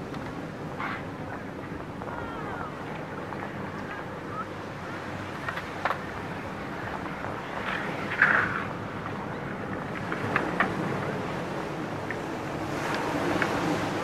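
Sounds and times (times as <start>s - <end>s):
skateboard scraping concrete: 5.3s - 6.1s, 6.8s - 11.2s.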